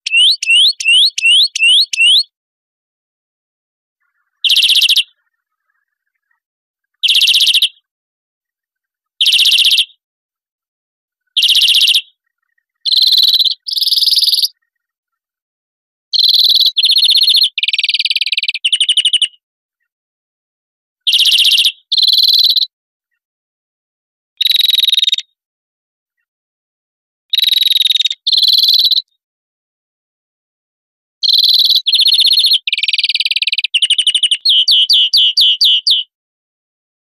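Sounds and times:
greenfinch trilled song: 0.0 - 2.4, 4.3 - 5.3, 7.0 - 7.9, 11.4 - 12.2, 12.9 - 14.6, 31.2 - 36.1.

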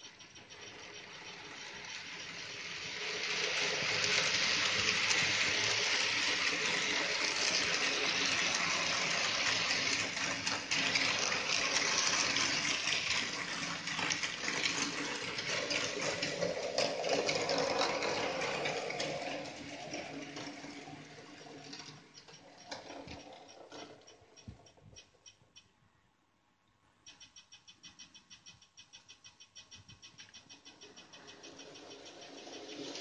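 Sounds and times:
model train running on track: 0.0 - 25.4, 27.1 - 33.0.

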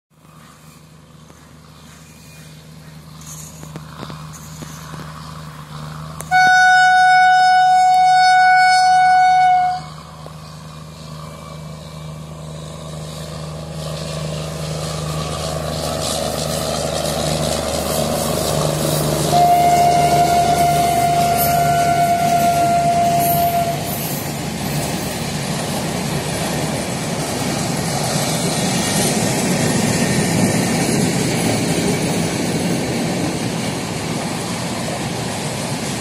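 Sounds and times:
approaching train running noise: 0.1 - 36.0
locomotive air horn blast: 6.3 - 10.2, 19.0 - 24.2.

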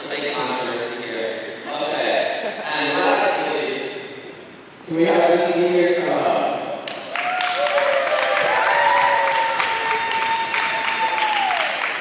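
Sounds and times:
crowd clapping and cheering: 6.8 - 12.0
long drawn-out whoops: 7.1 - 12.0.

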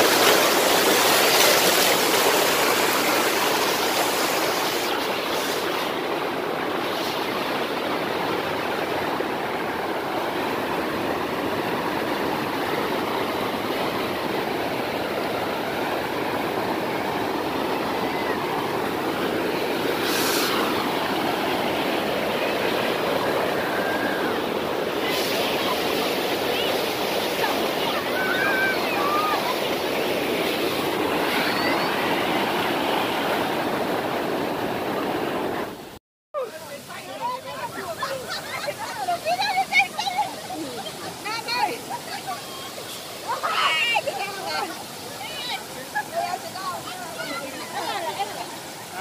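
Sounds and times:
water rushing over rocks: 0.0 - 49.0.

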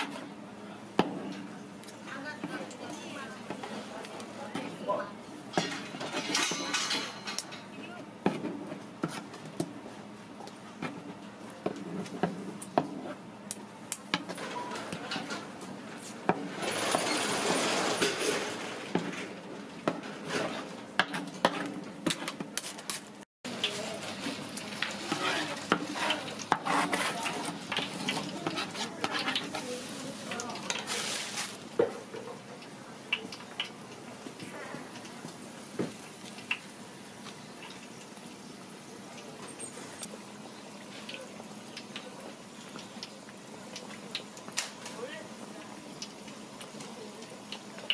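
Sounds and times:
hot oil sizzling: 12.5 - 20.0, 20.7 - 47.9.

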